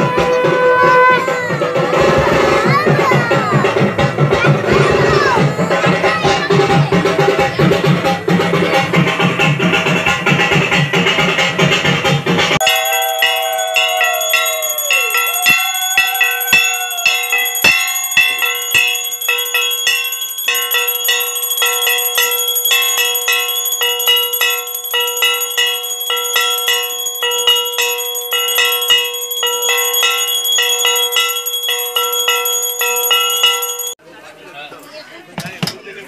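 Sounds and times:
long held note sagging: 0.0s - 1.9s
metal bells ringing: 12.6s - 34.0s.

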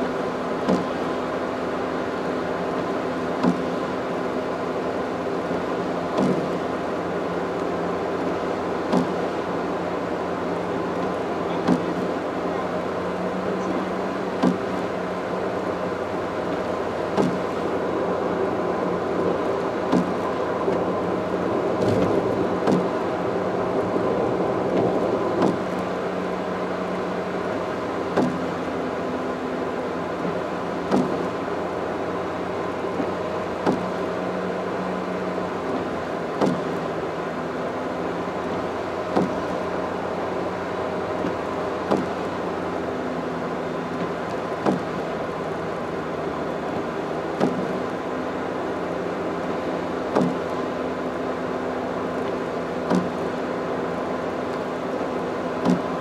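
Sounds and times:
engine hum: 0.0s - 56.0s
tyre and road noise: 0.0s - 56.0s.

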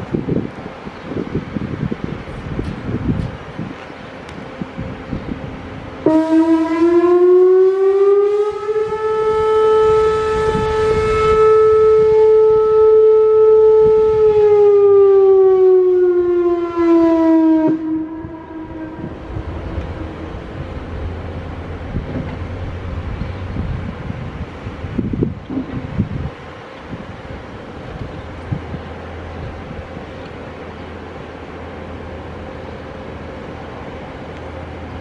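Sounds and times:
wind on microphone: 0.0s - 7.4s, 8.3s - 14.6s, 17.4s - 30.2s
warning siren tone: 6.0s - 22.0s.

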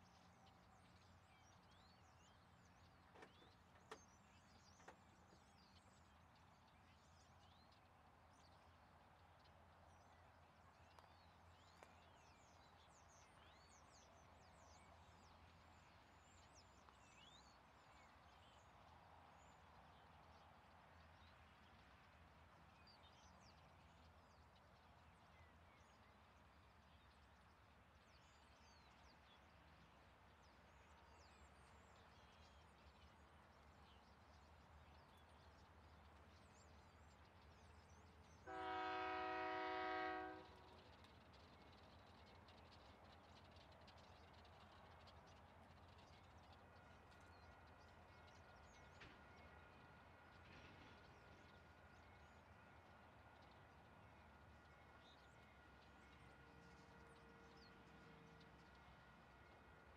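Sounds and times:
small birds chirping: 0.0s - 18.7s
locomotive air horn blast: 38.5s - 40.7s.

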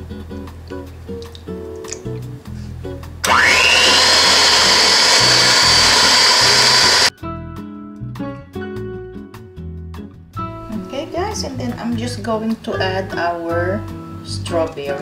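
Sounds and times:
background music: 0.0s - 15.0s
electric hand mixer whining: 3.2s - 7.1s.

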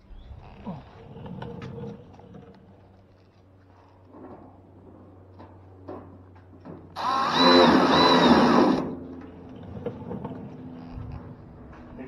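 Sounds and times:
cordless drill driving screw: 7.0s - 8.9s.

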